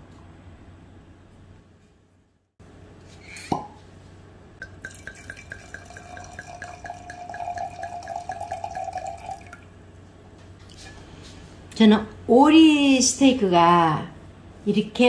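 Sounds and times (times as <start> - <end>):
wine glugging into a glass: 4.6 - 9.7.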